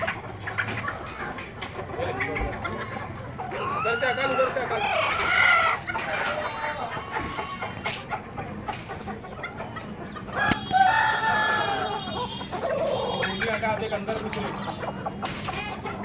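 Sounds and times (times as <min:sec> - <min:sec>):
chickens clucking: 0:00.0 - 0:16.0
rooster crowing: 0:10.4 - 0:13.2.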